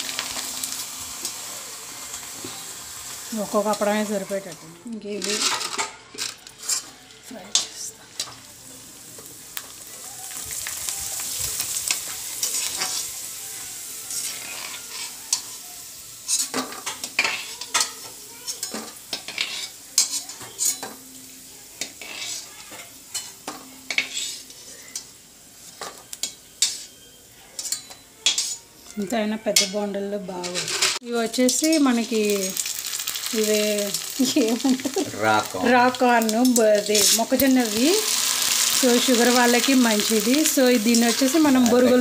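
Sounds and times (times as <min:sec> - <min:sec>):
food sizzling in hot oil: 0:00.0 - 0:42.0
metal spoon scraping and knocking pan: 0:18.6 - 0:20.9, 0:21.8 - 0:22.5, 0:23.1 - 0:24.5, 0:27.6 - 0:28.6.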